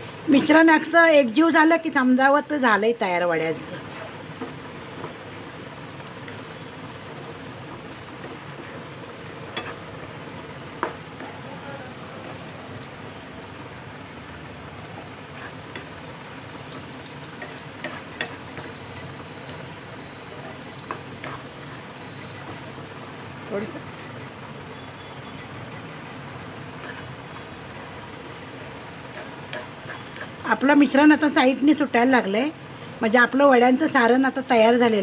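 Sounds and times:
frying hiss: 0.0s - 35.0s
spatula scraping a pan: 9.4s - 10.1s, 14.9s - 19.6s, 20.2s - 22.7s, 26.7s - 27.8s, 28.6s - 30.5s
spatula tapping the pan: 9.5s - 9.8s, 10.7s - 11.3s, 15.7s - 19.6s, 20.3s - 21.5s, 29.1s - 30.3s.

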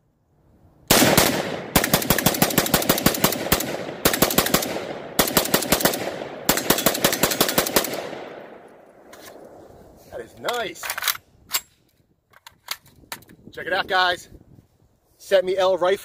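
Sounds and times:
rifle shots: 0.9s - 9.6s.

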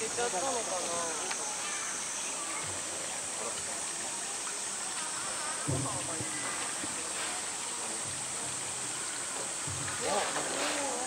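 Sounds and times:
cicada drone: 0.0s - 11.0s
faint chatter of voices: 0.0s - 11.0s
running water: 0.0s - 11.0s
dull thump: 5.6s - 6.4s.

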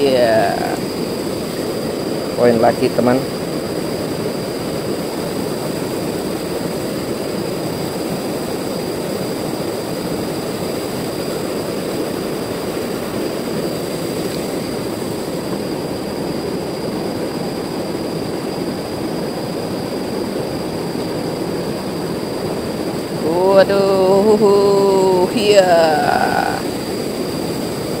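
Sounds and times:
river rushing past boulders: 0.0s - 2.4s, 3.2s - 28.0s.

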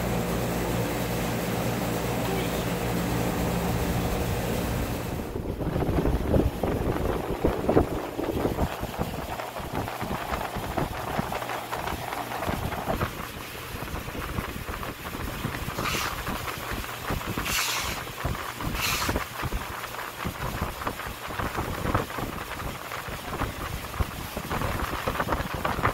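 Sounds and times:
low uneven rumble: 0.0s - 25.9s
short scraping rustles: 15.7s - 16.4s, 17.4s - 19.3s.

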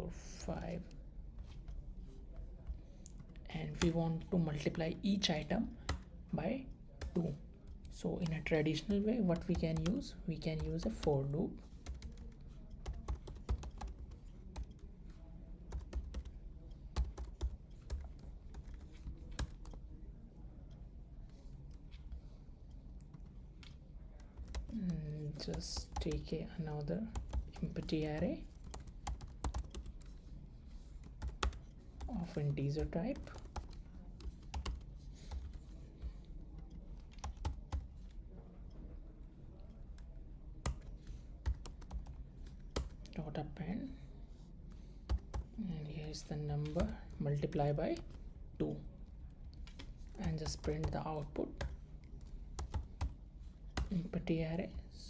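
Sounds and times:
low steady hum: 0.0s - 55.0s
keyboard typing: 7.0s - 26.4s, 27.0s - 43.2s, 45.0s - 48.2s, 49.0s - 54.1s.

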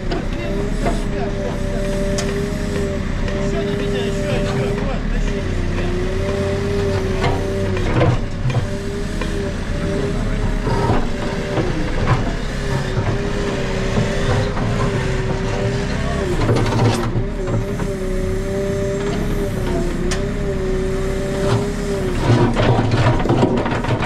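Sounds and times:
diesel engine running: 0.0s - 24.0s
engine knocks: 0.0s - 24.0s.

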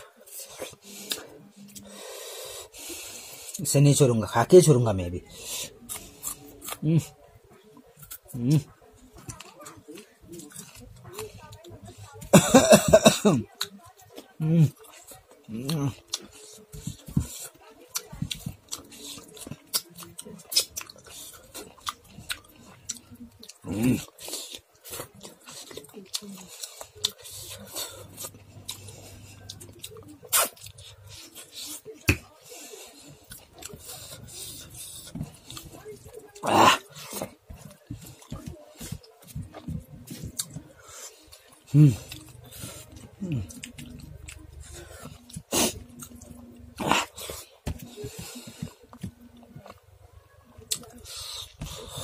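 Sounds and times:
wet chewing and lip smacking: 13.6s - 49.9s.

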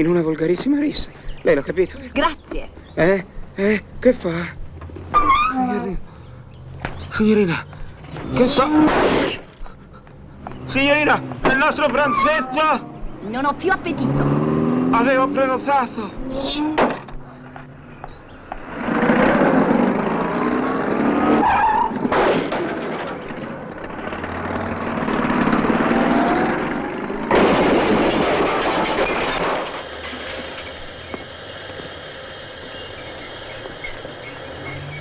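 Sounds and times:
tyres squealing: 0.6s - 19.4s, 21.3s - 22.2s, 29.0s - 35.0s
car crashing into lamppost: 8.6s - 9.5s, 21.8s - 23.6s, 27.3s - 30.7s.

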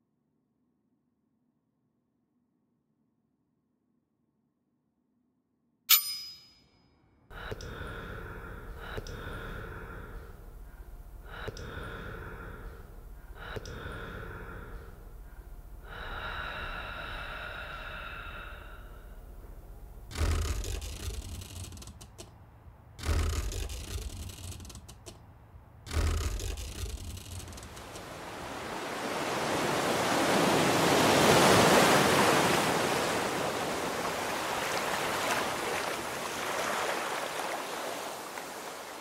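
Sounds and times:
person gasping breaths: 7.3s - 19.5s
low steady rumble: 7.3s - 28.6s
ocean surf: 27.7s - 39.0s.

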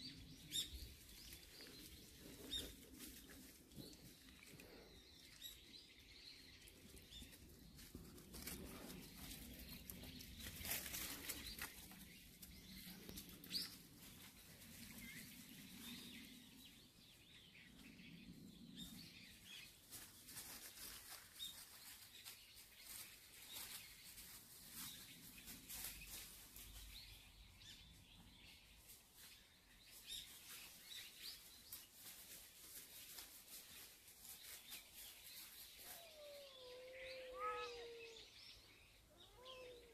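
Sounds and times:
footsteps in dry leaves: 6.7s - 16.0s, 19.5s - 27.8s, 28.8s - 36.6s
faint bird chirps: 35.3s - 39.9s.

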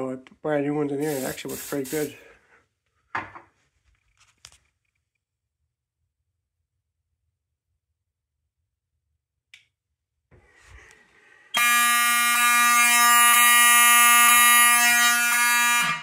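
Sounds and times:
buzzy fire alarm horn: 11.5s - 16.0s.

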